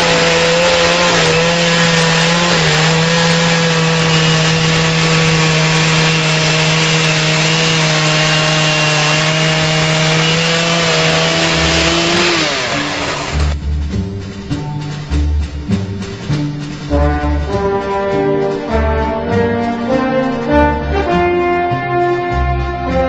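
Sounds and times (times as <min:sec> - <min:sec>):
chainsaw cutting log: 0:00.0 - 0:13.6
chainsaw engine at full throttle: 0:00.0 - 0:13.6
brass music: 0:16.8 - 0:23.0.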